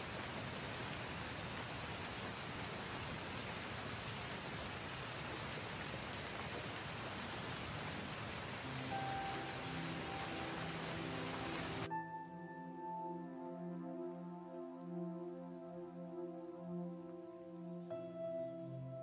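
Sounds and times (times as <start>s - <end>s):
steady rain: 0.0s - 19.0s
soft music: 7.7s - 19.0s.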